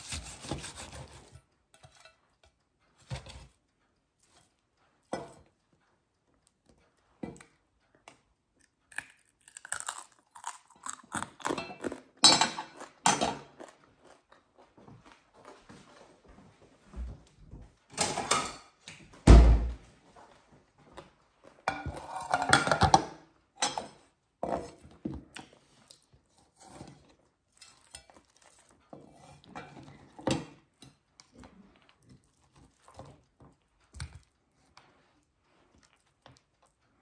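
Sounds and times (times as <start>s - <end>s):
crunch of crisp skin: 8.8s - 12.2s.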